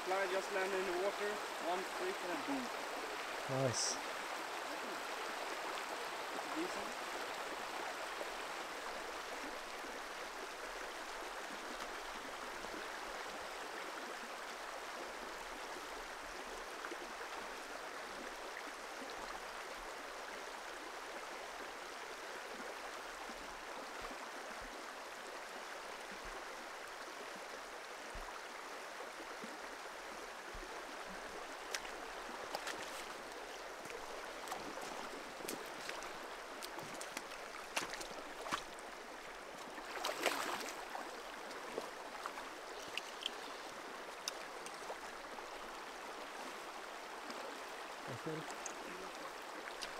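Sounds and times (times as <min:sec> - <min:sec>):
river rushing over stones: 0:00.0 - 0:18.8, 0:21.6 - 0:49.9
light clicks: 0:42.8 - 0:43.5.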